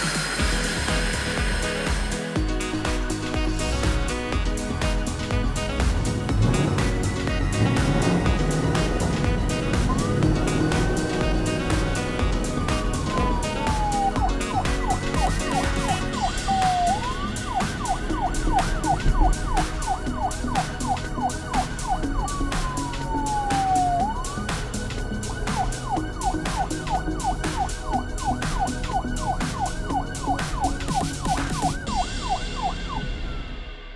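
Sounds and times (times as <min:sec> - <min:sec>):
background music with steady beat: 0:00.0 - 0:33.9
police siren yelp: 0:06.5 - 0:33.6.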